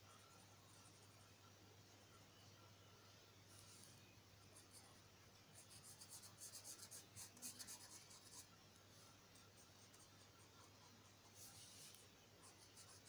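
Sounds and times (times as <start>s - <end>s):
marker pen scratching on paper: 5.6s - 8.5s, 9.3s - 13.0s.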